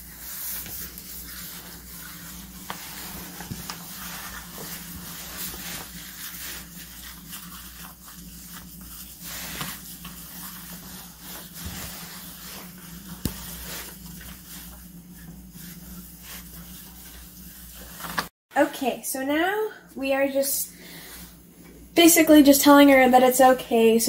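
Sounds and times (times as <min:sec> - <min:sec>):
steady low hum: 0:00.0 - 0:17.7
hands rubbing lather into fur: 0:00.0 - 0:18.1.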